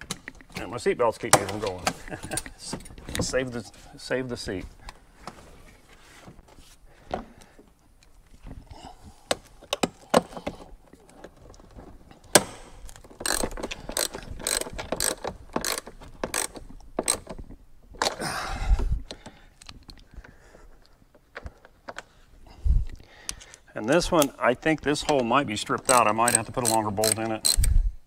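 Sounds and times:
scraping rustle: 0:02.9 - 0:06.8
socket ratchet clicking: 0:12.3 - 0:17.4, 0:25.8 - 0:27.8.

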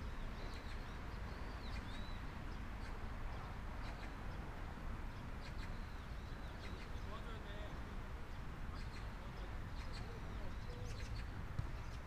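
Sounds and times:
bird chirps: 0:00.0 - 0:04.2, 0:05.4 - 0:07.2, 0:08.8 - 0:12.0.

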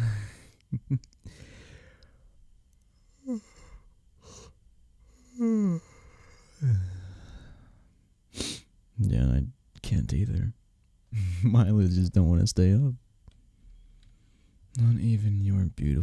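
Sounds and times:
man breathing and sighing: 0:00.0 - 0:08.7
man humming: 0:05.2 - 0:07.4.

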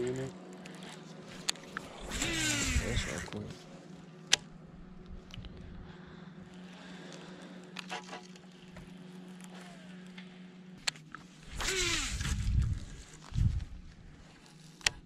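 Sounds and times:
fishing reel spool whirring: 0:00.0 - 0:03.5, 0:06.5 - 0:15.0
light clicks of rod and reel: 0:00.0 - 0:03.7, 0:06.5 - 0:15.0
steady low hum: 0:00.0 - 0:15.0.

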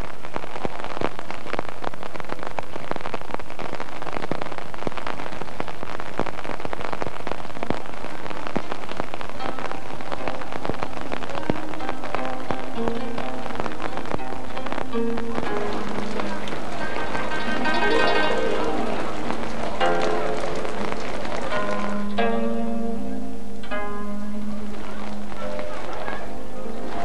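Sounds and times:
steady rain falling: 0:00.0 - 0:27.0
faint music with held notes: 0:09.3 - 0:27.0.

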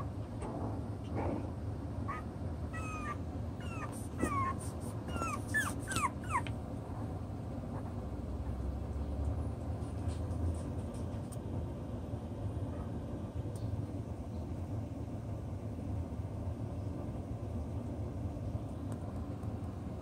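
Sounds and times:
puppies whimpering and yipping: 0:02.1 - 0:06.6.

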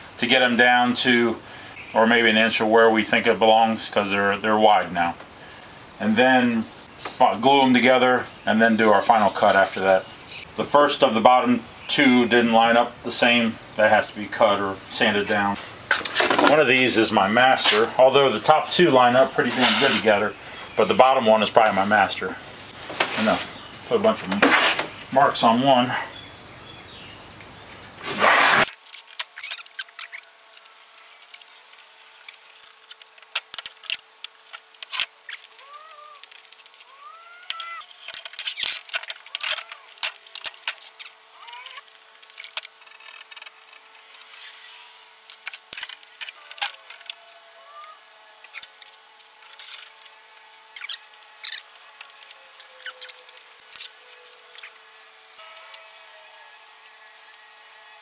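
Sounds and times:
short squeaky chirps: 0:29.4 - 0:30.3, 0:35.2 - 0:36.2, 0:36.9 - 0:38.8, 0:40.8 - 0:42.1, 0:50.7 - 0:51.7, 0:52.8 - 0:53.2.

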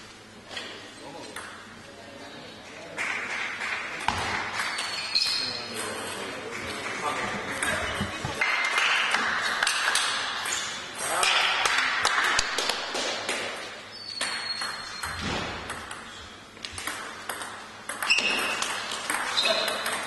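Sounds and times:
table tennis ball bouncing: 0:04.0 - 0:06.0, 0:06.6 - 0:10.2, 0:14.2 - 0:20.0.

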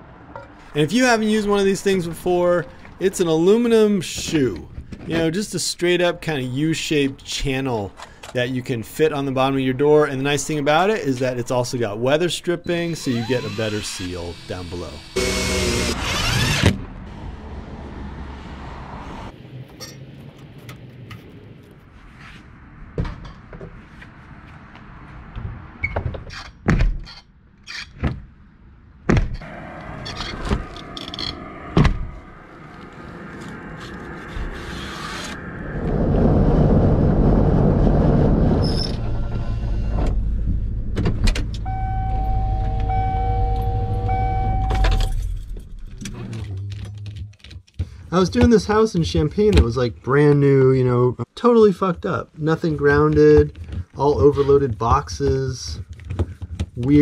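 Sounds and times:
repeating electronic chime: 0:41.7 - 0:45.1.

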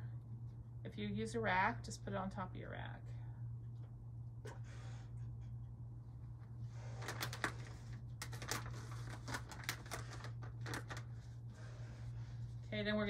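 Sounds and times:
steady low hum: 0:00.0 - 0:13.0
tissues rustling and crinkling: 0:06.8 - 0:12.7.

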